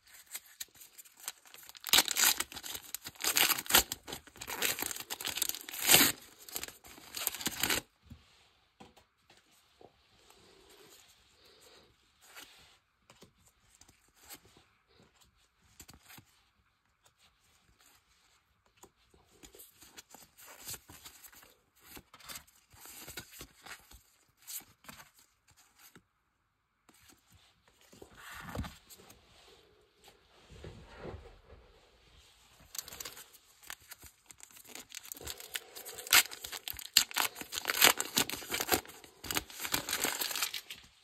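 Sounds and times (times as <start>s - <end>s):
foil packs crinkling: 0.1s - 7.8s, 32.7s - 40.9s
foil pack tearing: 1.4s - 7.8s, 34.4s - 40.7s.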